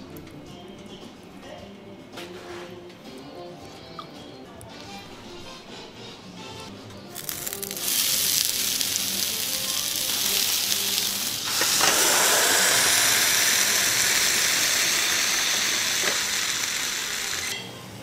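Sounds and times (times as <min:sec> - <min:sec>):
dough sizzling on hot plates: 0:07.1 - 0:17.6.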